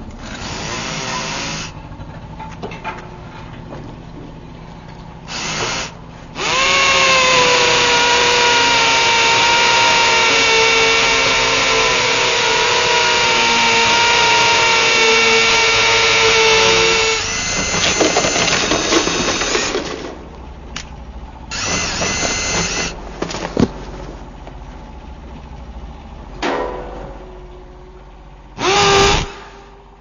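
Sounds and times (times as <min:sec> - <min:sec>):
power tool whining and grinding: 0:00.2 - 0:01.8, 0:05.3 - 0:20.0, 0:21.5 - 0:23.0, 0:28.6 - 0:29.8.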